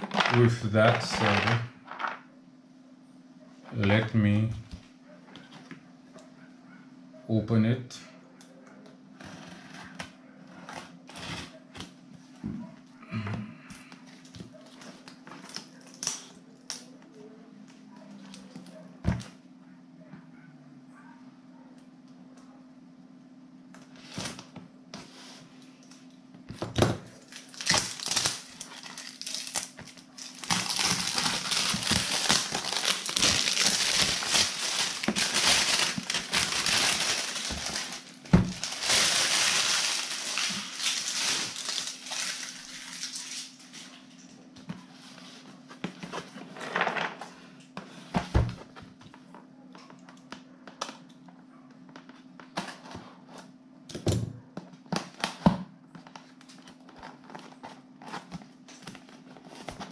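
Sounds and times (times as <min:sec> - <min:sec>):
plastic wrap crinkling: 0:00.0 - 0:02.2, 0:27.1 - 0:44.1.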